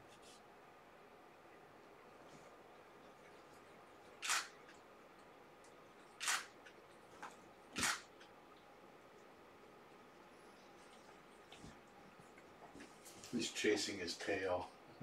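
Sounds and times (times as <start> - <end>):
camera shutter firing: 4.2 - 4.6, 6.2 - 6.6, 7.8 - 8.1.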